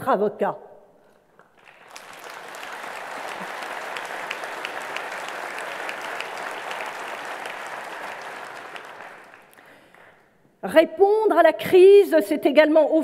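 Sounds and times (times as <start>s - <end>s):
large audience applauding: 1.3s - 10.3s.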